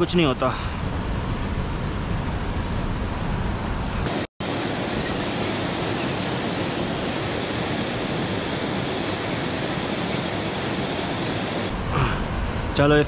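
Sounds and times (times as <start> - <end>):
river rushing: 4.1 - 11.7.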